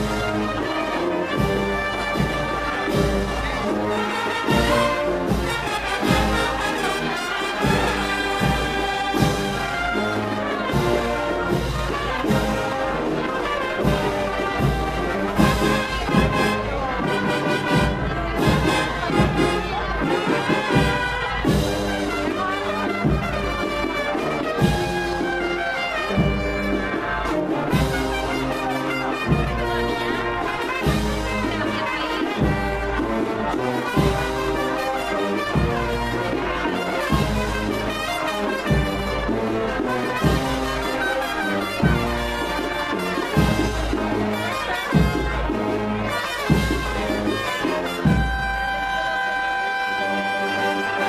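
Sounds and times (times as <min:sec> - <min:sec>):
brass and cornets playing march: 0:00.0 - 0:51.0
drum beats: 0:00.0 - 0:51.0.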